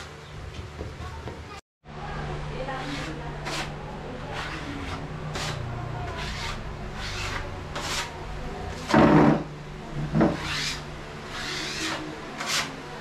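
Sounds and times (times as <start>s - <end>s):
putty knife scraping wall: 2.8s - 9.5s, 10.1s - 12.8s.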